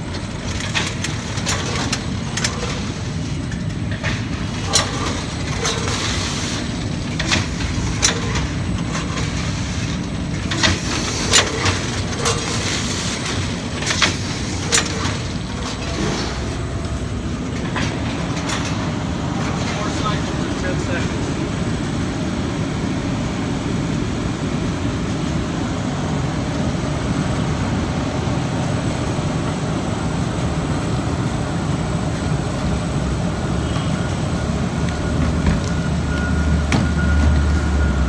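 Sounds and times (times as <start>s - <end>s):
machine rumble: 0.0s - 38.0s
sharp machine clacks: 0.4s - 16.5s.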